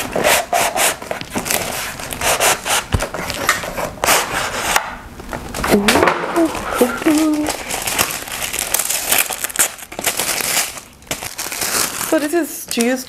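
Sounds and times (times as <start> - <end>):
paper wrapping rustling: 0.0 - 13.0.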